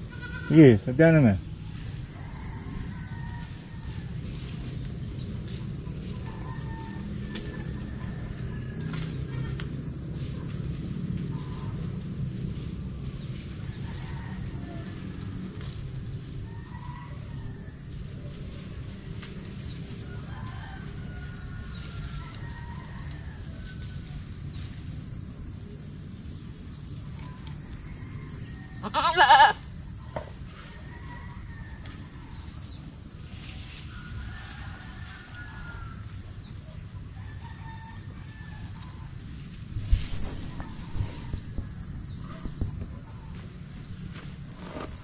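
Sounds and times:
steady high-pitched hiss: 0.0 - 45.0
goat bleating: 0.1 - 0.6, 28.8 - 29.6.

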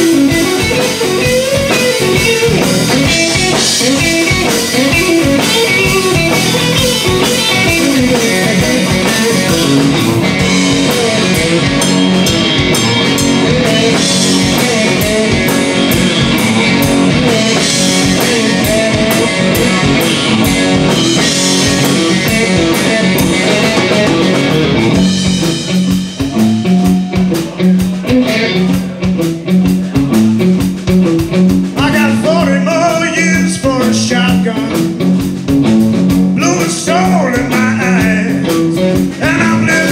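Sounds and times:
drum kit: 0.0 - 39.9
electric bass: 0.0 - 39.9
electric guitar playing: 0.0 - 39.9
man singing: 31.8 - 35.0, 36.4 - 39.9.

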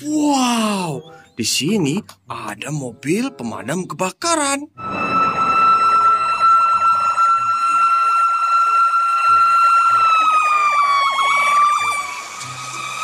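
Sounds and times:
fire engine siren: 4.8 - 13.0.

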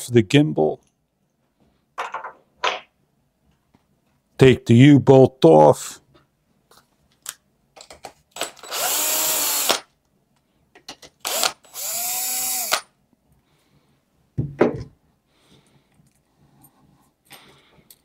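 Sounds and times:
cordless drill spinning: 8.4 - 9.9, 11.2 - 12.9
knock: 14.4 - 14.9.

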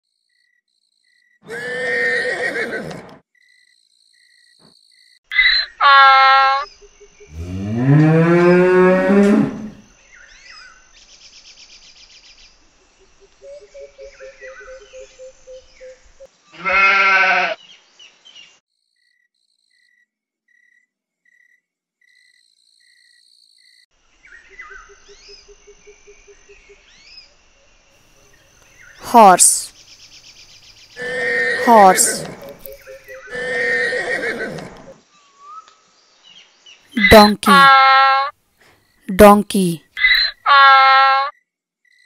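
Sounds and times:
faint insect chirping: 0.1 - 1.4, 3.3 - 5.2, 6.6 - 8.0, 9.5 - 16.7, 17.6 - 31.6, 32.2 - 33.3
farm animal calls: 5.4 - 6.7, 16.5 - 17.6, 31.0 - 35.0, 37.0 - 38.3, 40.0 - 41.3
cow mooing: 7.4 - 9.8.

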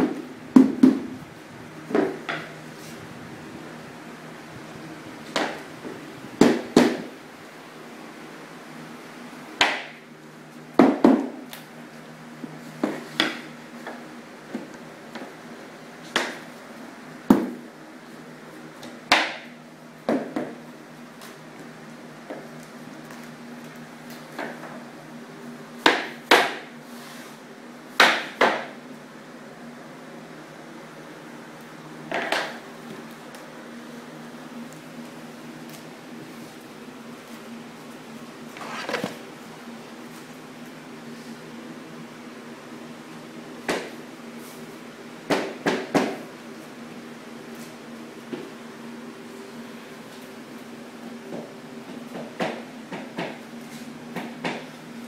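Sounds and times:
rubber mallet knocking floor planks: 0.0 - 1.1, 6.4 - 7.1, 10.8 - 11.4, 28.0 - 28.7.

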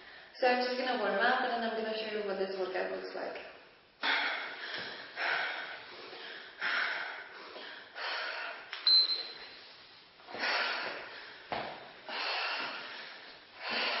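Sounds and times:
woman's sharp exhaled breaths: 4.0 - 8.7, 10.3 - 14.0.

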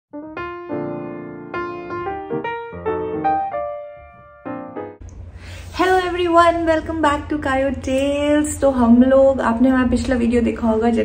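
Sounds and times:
piano notes and chords: 0.1 - 5.0.

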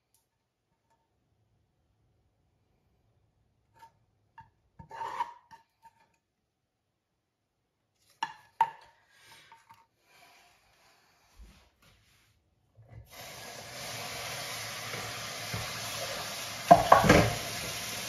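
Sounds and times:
wooden spatula scraping pot: 4.8 - 6.2.

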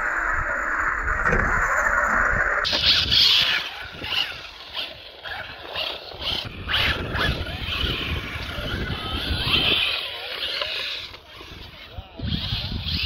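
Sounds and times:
rc buggy motor revving: 0.0 - 13.0.

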